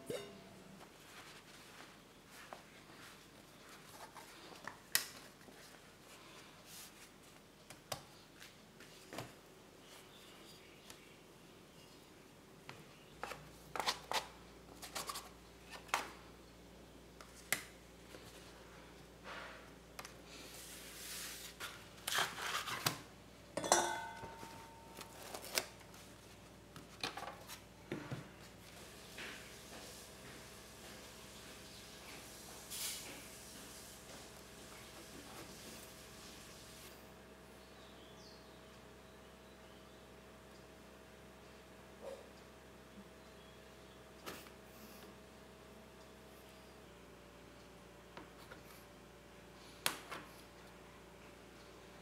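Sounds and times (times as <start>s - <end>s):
baking paper rustling: 20.3s - 23.1s, 24.6s - 26.5s.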